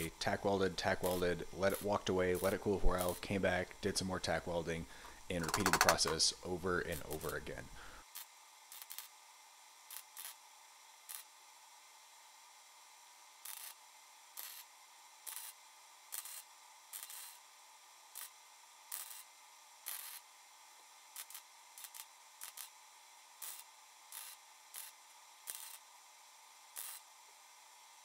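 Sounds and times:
faint steady hiss: 0:00.0 - 0:09.2
welder buzzing bursts: 0:00.0 - 0:11.4, 0:13.2 - 0:28.0.

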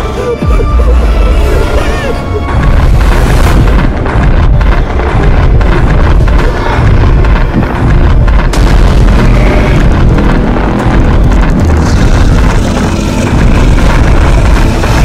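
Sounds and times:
action film soundtrack with booms: 0:00.0 - 0:15.0.

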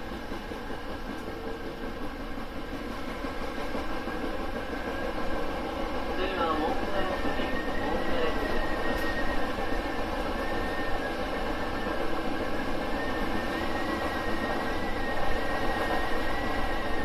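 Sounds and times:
train wheels rumbling on rail: 0:00.0 - 0:17.0.

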